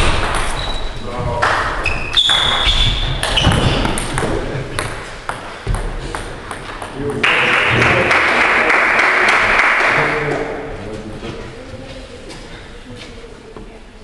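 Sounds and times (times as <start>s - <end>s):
small crowd clapping: 7.2s - 10.6s.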